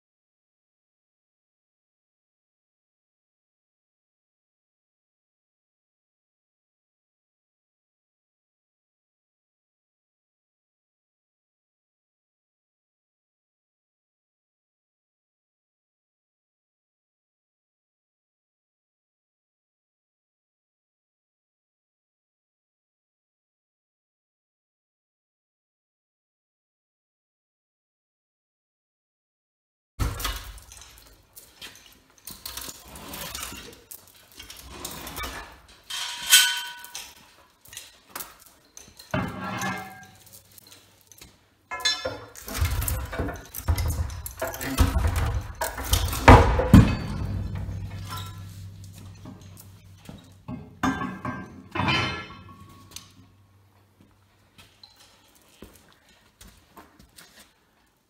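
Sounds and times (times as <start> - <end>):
chain rattle: 30.0 - 53.7, 54.4 - 56.1
metal clanking and scraping: 30.0 - 53.9
loud ringing metal clang: 35.9 - 37.0, 45.6 - 53.1
low hum: 46.0 - 53.8.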